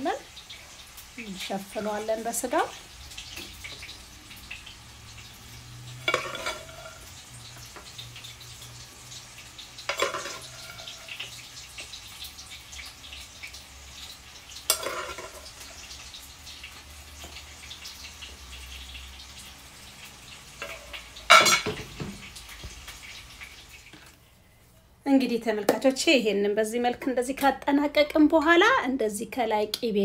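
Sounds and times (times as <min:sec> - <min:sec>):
metal spoon scraping: 0:06.0 - 0:07.1, 0:09.9 - 0:11.3, 0:14.7 - 0:15.5.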